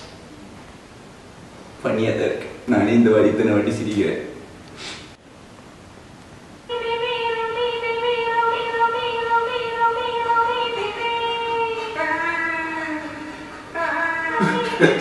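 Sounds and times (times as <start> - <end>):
woman singing a long note: 6.7 - 15.0.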